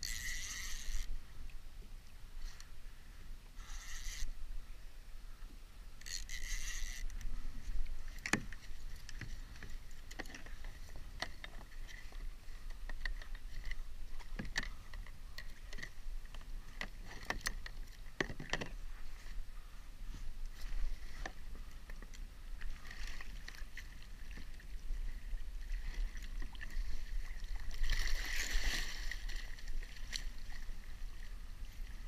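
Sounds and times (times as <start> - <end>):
fishing gear clicks and knocks: 0.0 - 1.1, 6.0 - 18.8.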